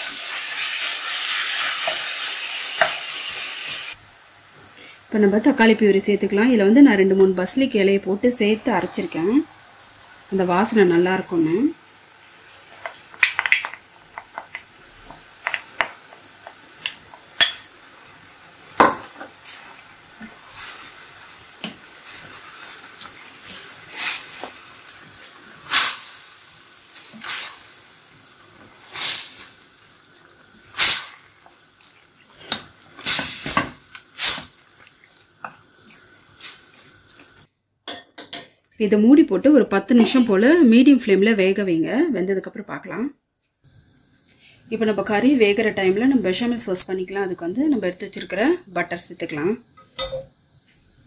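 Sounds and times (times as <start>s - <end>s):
spoon scraping and knocking pan: 1.6s - 3.4s.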